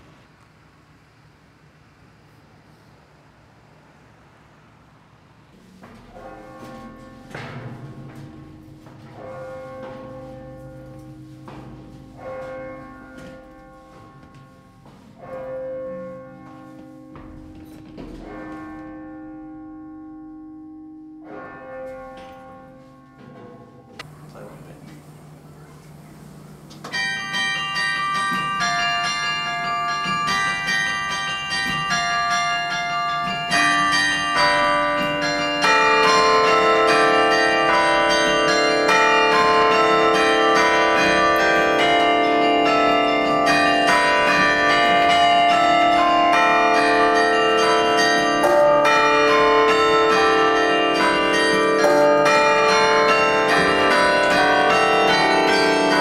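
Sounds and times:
carillon bells playing melody: 26.9 - 56.0.

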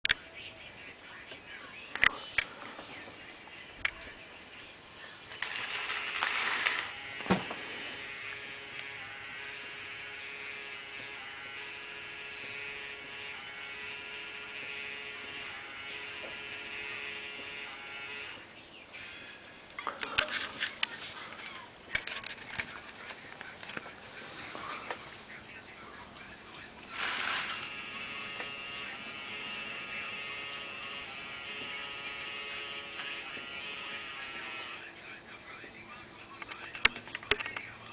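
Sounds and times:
small electric motor whirring: 5.4 - 18.4, 27.0 - 34.8.

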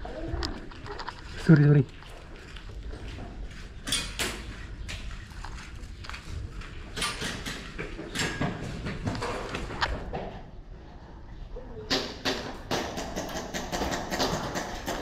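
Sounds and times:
pellets striking plastic drums: 12.2 - 15.0.

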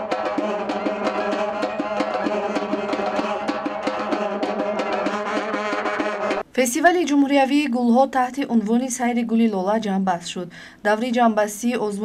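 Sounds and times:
fast percussion beat: 0.0 - 6.4.

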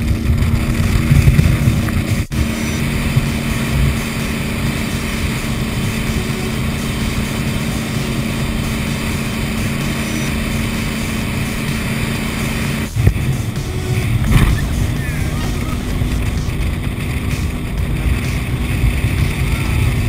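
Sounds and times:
wind and water rushing: 0.0 - 9.6, 10.9 - 17.3
boat engine droning: 0.0 - 20.0.

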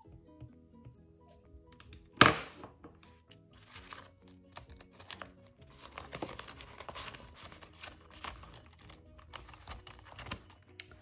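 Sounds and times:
soft background music: 0.0 - 11.0
paper banknotes rustling: 3.5 - 10.8
plastic zipper pocket crackling: 3.6 - 10.5.

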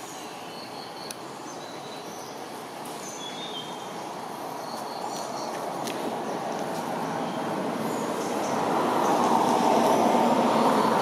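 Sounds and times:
bird chirps: 3.0 - 3.9.

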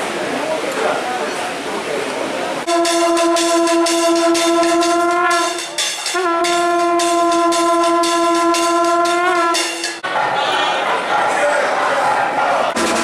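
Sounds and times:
temple bells ringing rapidly: 2.7 - 10.0
horn holding long note: 2.7 - 10.7.

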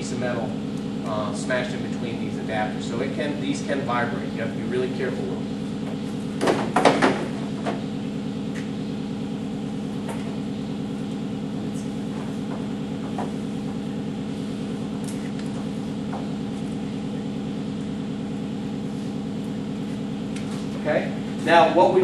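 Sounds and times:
machine hum: 0.0 - 22.0
sharp knocks: 6.4 - 7.8.

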